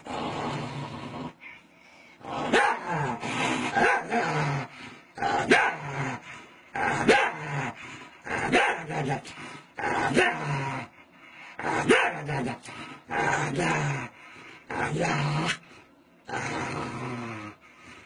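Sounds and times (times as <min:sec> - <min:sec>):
small dog barking and growling: 0:02.4 - 0:06.2, 0:06.8 - 0:07.7, 0:08.3 - 0:09.3, 0:09.9 - 0:10.7, 0:11.6 - 0:12.6.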